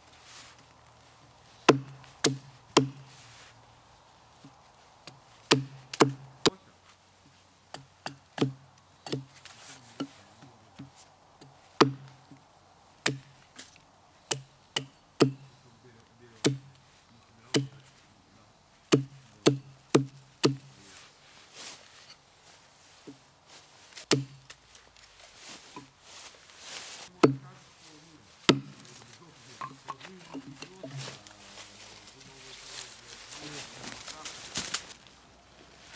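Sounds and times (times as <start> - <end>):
knife chopping wooden stick: 1.7 - 3.1, 5.1 - 6.6, 11.8 - 12.2, 14.3 - 15.5, 16.4 - 16.7, 18.9 - 20.7, 24.0 - 24.6, 27.2 - 27.5, 28.4 - 28.9.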